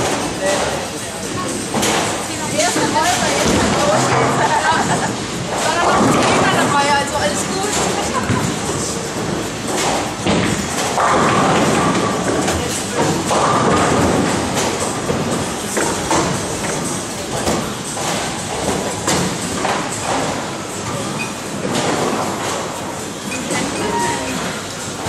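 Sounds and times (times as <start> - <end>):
bowling balls rolling: 0.0 - 25.0
balls knocking pins: 7.4 - 20.6.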